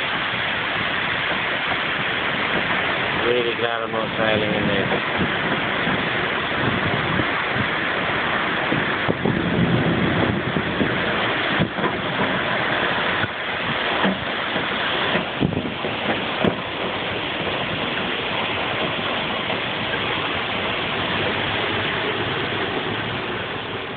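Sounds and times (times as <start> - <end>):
storm rain and wind: 0.0 - 23.9
sharp knocks: 14.0 - 17.8.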